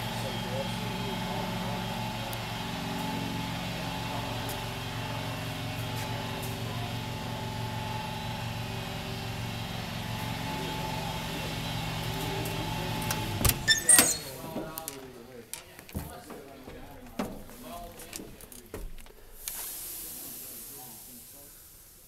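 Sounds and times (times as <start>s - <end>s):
diesel truck engine idling: 0.0s - 14.8s.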